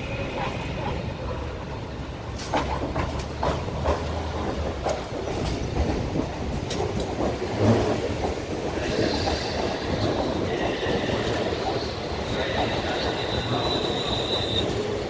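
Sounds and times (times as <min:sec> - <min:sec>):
train passing with low rumble: 0:00.0 - 0:15.0
wheels clicking over rail joints: 0:02.3 - 0:15.0
high wheel squeal: 0:08.9 - 0:14.9.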